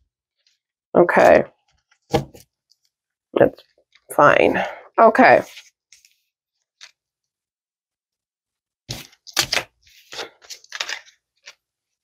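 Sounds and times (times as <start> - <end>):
cards snapping and rustling: 8.9 - 11.6.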